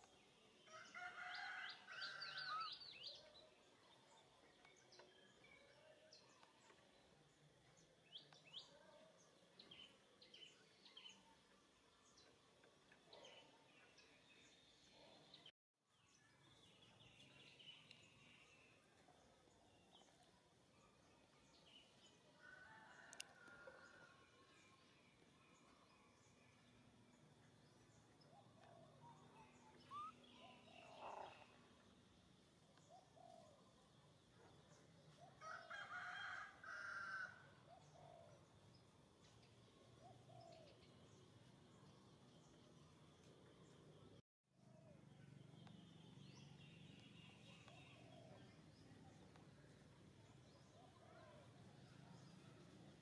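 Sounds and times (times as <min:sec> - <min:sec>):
distant birds chirping: 0:27.1 - 0:31.9
faint animal calls: 0:28.4 - 0:31.6.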